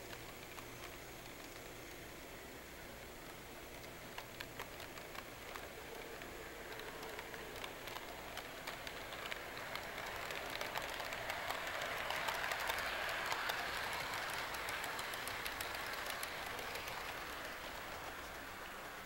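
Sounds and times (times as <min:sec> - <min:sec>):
model train cars rattling on track: 0:00.0 - 0:19.0.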